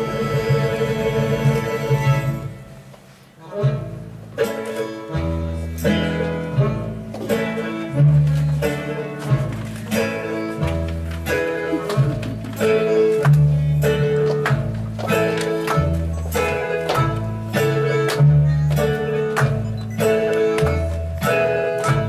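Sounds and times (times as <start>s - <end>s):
instrumental dance music: 0.0s - 22.0s.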